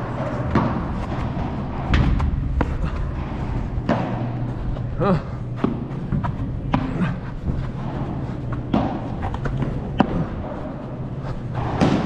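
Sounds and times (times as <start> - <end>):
ball hitting rackets: 0.0 - 4.9, 5.5 - 12.0
steady low hum: 0.0 - 12.0.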